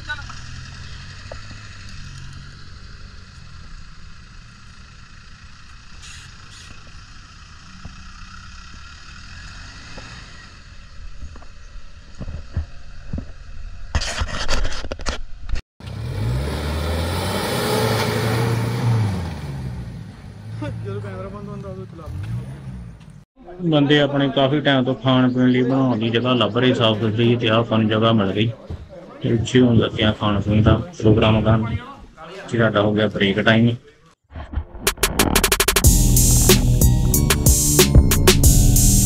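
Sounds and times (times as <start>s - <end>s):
off-road engines at low revs: 0.0s - 14.0s, 15.8s - 23.3s
knocks and scrapes: 12.1s - 15.6s, 34.3s - 35.9s.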